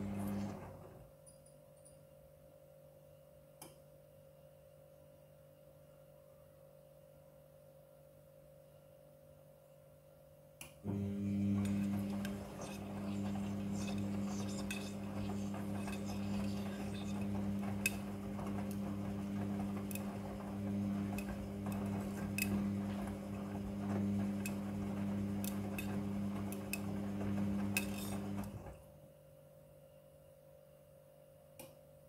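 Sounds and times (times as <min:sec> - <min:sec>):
washing machine motor hum: 0:00.0 - 0:01.1, 0:10.8 - 0:28.9.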